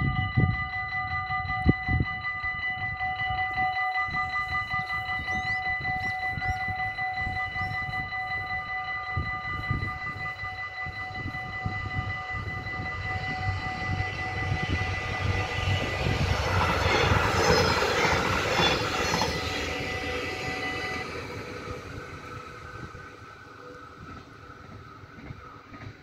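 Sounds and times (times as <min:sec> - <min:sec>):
level-crossing warning bells ringing: 0:00.0 - 0:26.0
diesel train passing: 0:00.7 - 0:26.0.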